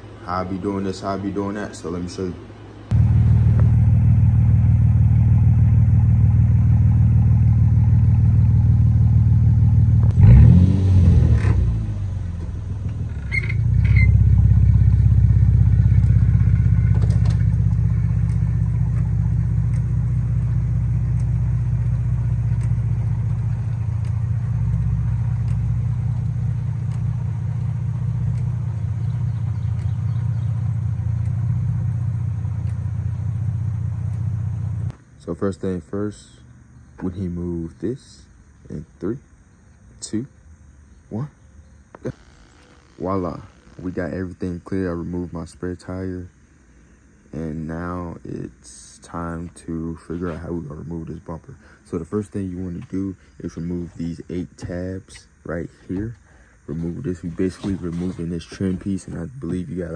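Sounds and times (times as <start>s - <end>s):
car engine idling: 0.0s - 38.6s.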